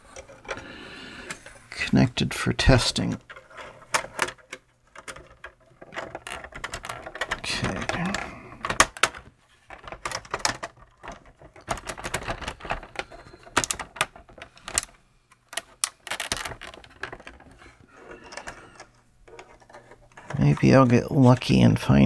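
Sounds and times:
plastic case clicking and knocking: 3.9 - 20.8.

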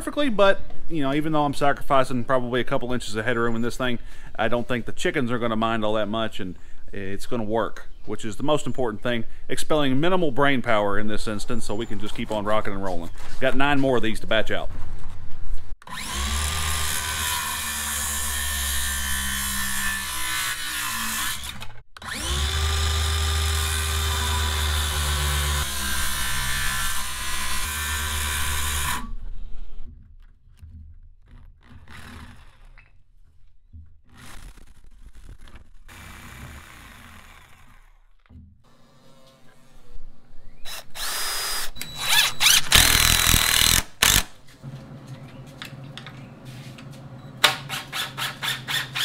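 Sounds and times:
circular saw cutting boards: 15.8 - 30.0, 31.2 - 39.9.

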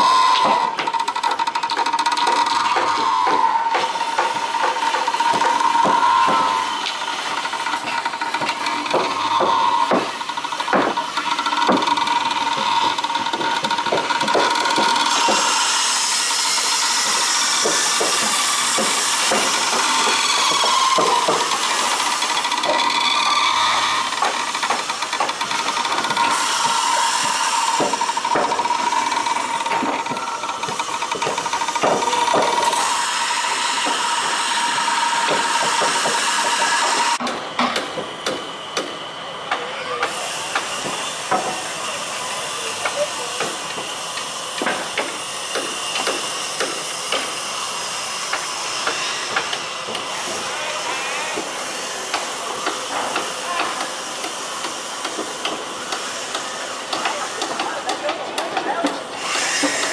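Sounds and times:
metal and timber clanks: 0.0 - 38.9.

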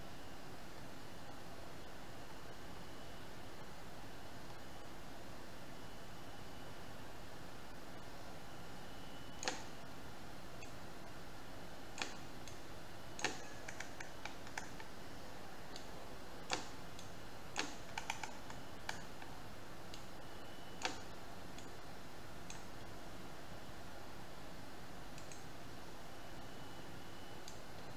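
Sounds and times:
mouse and keyboard clicks: 9.4 - 9.8, 11.9 - 12.6, 13.2 - 15.0, 15.7 - 20.1, 20.8 - 21.8, 25.1 - 25.5, 27.4 - 27.9.

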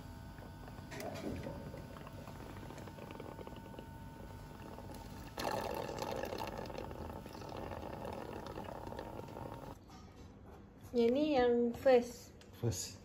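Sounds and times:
faint steady hum: 0.0 - 9.8
wet slurping through tube: 0.9 - 9.8.

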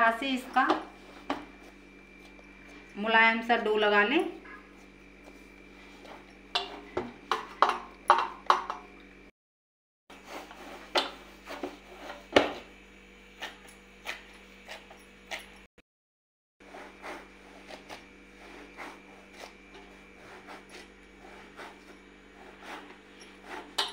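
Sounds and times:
hands kneading dough: 16.6 - 23.9.

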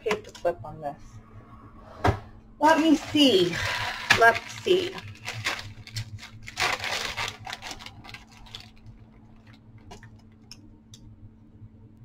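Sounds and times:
plastic bag crinkling: 2.9 - 10.6.

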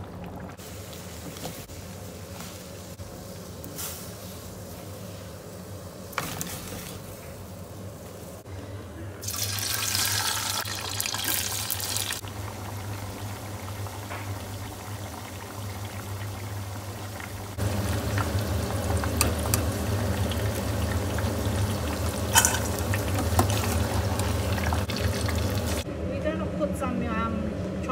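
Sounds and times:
chips sizzling in hot oil: 9.2 - 25.8.

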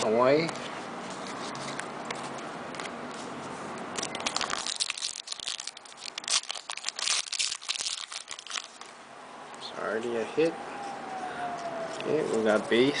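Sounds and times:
low background noise: 0.0 - 13.0
foil wrapper crinkling and tearing: 4.0 - 8.9.

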